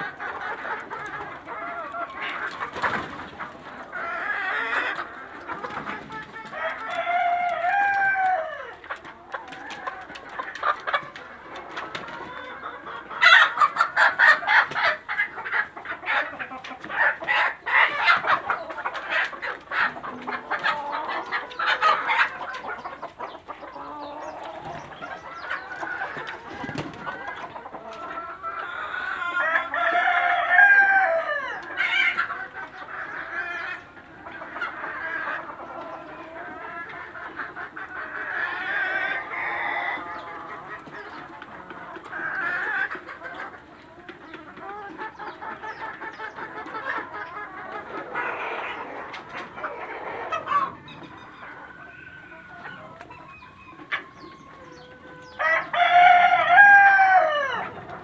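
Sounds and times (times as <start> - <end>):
chickens clucking and squawking: 0.0 - 58.0
rooster crowing: 6.6 - 8.7, 29.2 - 31.6, 53.3 - 57.7.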